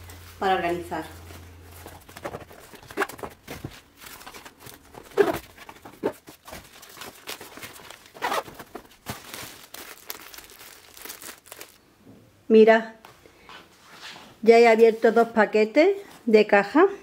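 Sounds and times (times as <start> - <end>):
plastic packaging rustling: 0.0 - 11.8.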